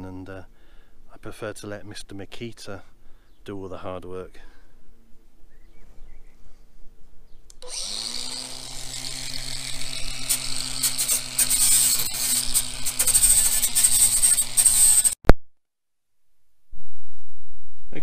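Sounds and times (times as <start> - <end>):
angle grinder grinding metal: 7.6 - 15.2.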